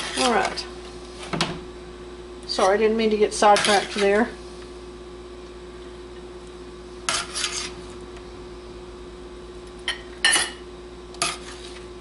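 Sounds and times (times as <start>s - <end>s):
metal spoon scraping sheet pan: 0.0s - 0.5s, 3.4s - 4.3s, 7.1s - 7.8s.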